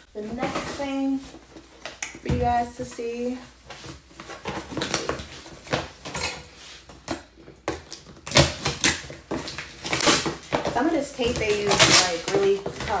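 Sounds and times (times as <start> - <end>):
knife scraping packing tape: 8.0 - 10.5, 11.5 - 13.0.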